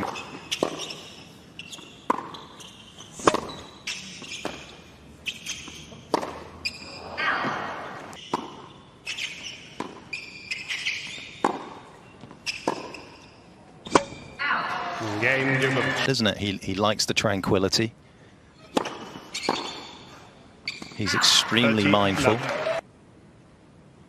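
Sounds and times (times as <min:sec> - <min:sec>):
racket hitting tennis ball: 0:00.0 - 0:01.0, 0:02.0 - 0:02.6, 0:03.2 - 0:06.6, 0:07.4 - 0:13.2, 0:13.8 - 0:14.3, 0:18.6 - 0:20.0
tennis ball bouncing: 0:00.0 - 0:06.8, 0:07.5 - 0:14.3, 0:18.6 - 0:20.0
shoe squeaks on court: 0:00.0 - 0:07.1, 0:08.2 - 0:14.4, 0:18.6 - 0:21.1.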